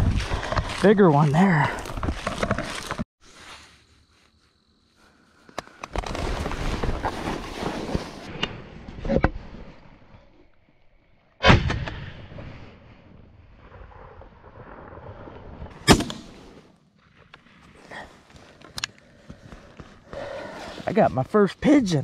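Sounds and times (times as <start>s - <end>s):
shotgun shot: 15.8s - 16.4s.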